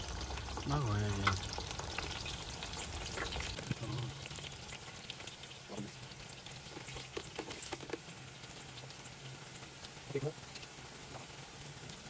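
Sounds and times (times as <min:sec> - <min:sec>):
fries deep-frying in oil: 0:00.0 - 0:12.0
oil crackles and pops: 0:00.0 - 0:12.0.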